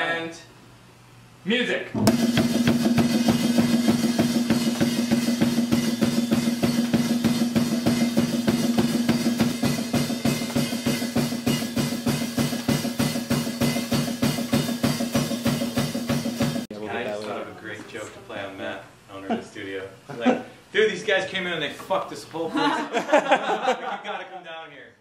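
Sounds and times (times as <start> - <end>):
fast kick and snare drum beat: 2.0 - 16.7
heavy metal band music: 2.1 - 16.6.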